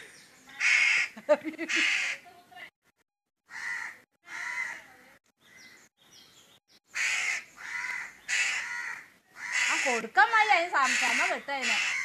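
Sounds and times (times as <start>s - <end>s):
crow cawing: 0.6s - 2.2s, 3.4s - 4.9s, 6.9s - 12.0s.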